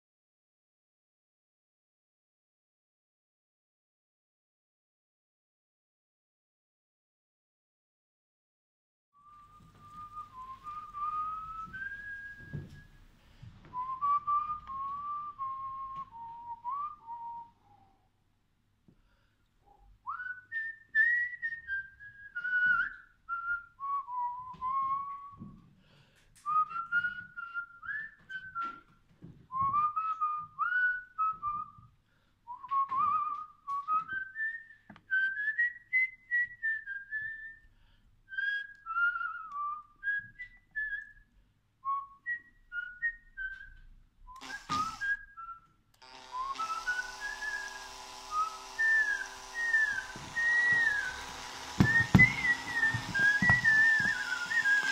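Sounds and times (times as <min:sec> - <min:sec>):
person whistling a tune: 0:09.2 - 0:13.0, 0:13.7 - 0:18.0, 0:19.6 - 0:25.6, 0:26.4 - 0:31.9, 0:32.5 - 0:37.7, 0:38.3 - 0:54.9
cordless drill motor hum: 0:44.4 - 0:45.2, 0:46.0 - 0:54.9.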